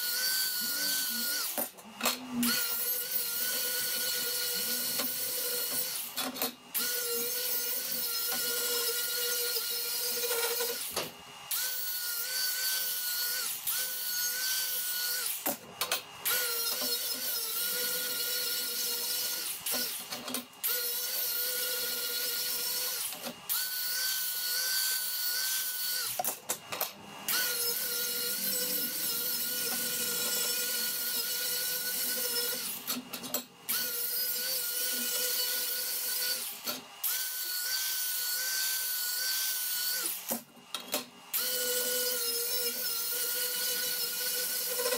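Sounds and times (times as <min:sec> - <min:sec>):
angle grinder sanding steel: 0:00.0 - 0:06.1, 0:27.3 - 0:33.0, 0:33.7 - 0:40.1.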